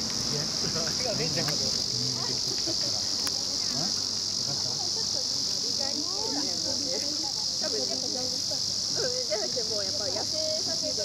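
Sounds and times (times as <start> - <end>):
cicadas buzzing: 0.0 - 11.0
faint distant voices: 0.2 - 11.0.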